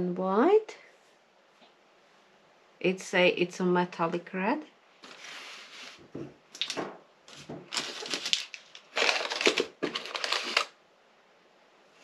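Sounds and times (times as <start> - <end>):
packaging rustling and crinkling: 6.6 - 10.8.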